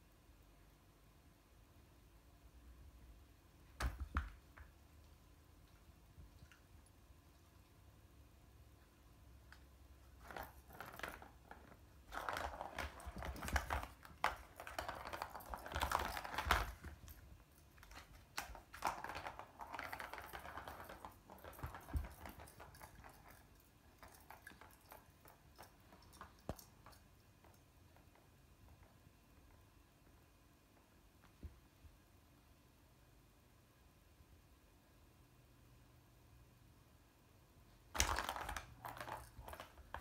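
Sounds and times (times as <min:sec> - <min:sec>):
ball rattling around plastic track: 0:10.1 - 0:27.0, 0:37.9 - 0:40.0.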